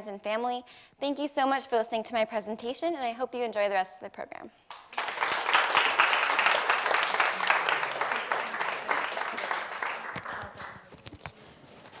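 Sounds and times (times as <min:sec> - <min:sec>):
audience applauding: 0:04.7 - 0:10.9.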